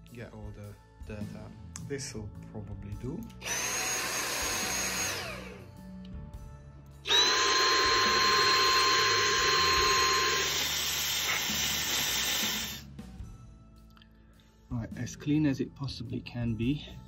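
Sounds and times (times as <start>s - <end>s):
vacuum cleaner whining: 3.4s - 5.6s, 7.1s - 12.8s.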